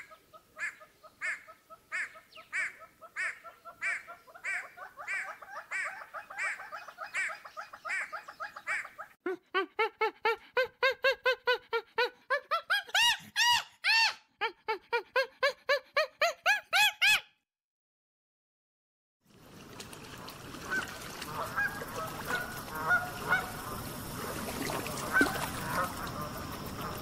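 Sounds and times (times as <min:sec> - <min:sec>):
rising-and-falling animal calls: 0:04.4 - 0:17.2
fast continuous animal chatter: 0:21.3 - 0:27.0.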